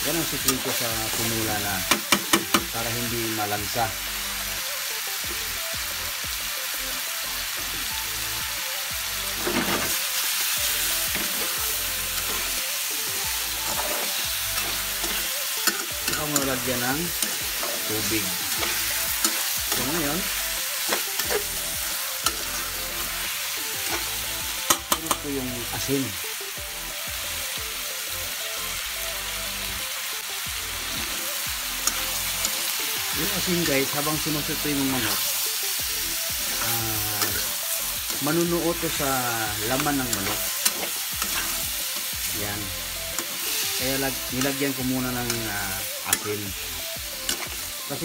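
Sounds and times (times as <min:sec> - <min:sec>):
background music: 0:00.0 - 0:48.0
chicken sizzling in hot oil: 0:00.0 - 0:48.0
metal spatula scraping pan: 0:13.6 - 0:16.5.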